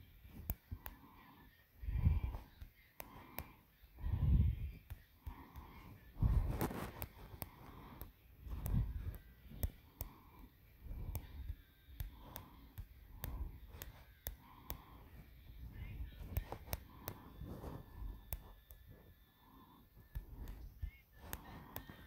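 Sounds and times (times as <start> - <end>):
soft rustling: 4.0 - 19.2.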